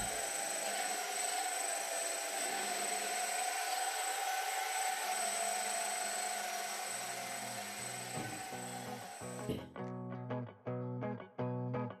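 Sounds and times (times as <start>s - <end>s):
electric motor high whine: 0.0s - 9.7s
music: 7.4s - 12.0s.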